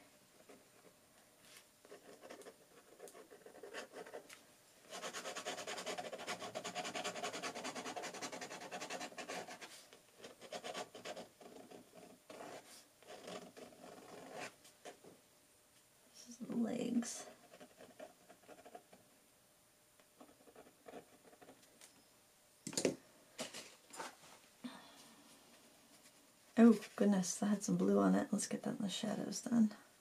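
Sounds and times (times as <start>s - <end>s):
pen nib scratching on paper: 1.9s - 4.3s, 4.9s - 14.5s.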